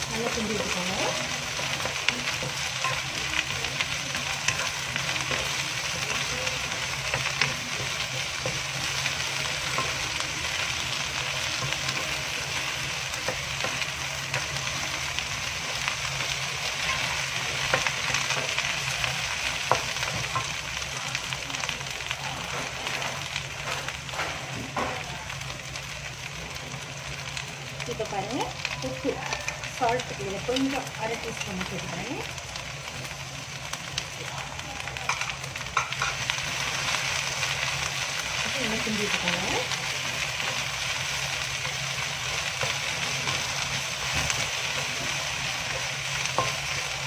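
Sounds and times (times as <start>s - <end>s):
vegetables sizzling in oil: 0.0s - 47.0s.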